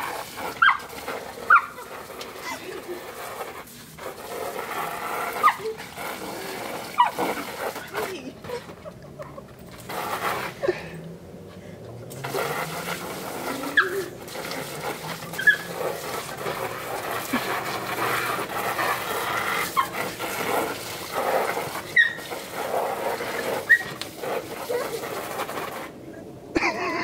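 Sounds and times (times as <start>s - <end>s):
hose spray nozzle hissing: 0.0s - 8.3s, 9.7s - 10.7s, 12.0s - 25.9s
puppy yipping: 0.6s - 0.9s, 1.5s - 1.8s, 15.3s - 15.8s, 22.0s - 22.2s, 23.7s - 24.0s.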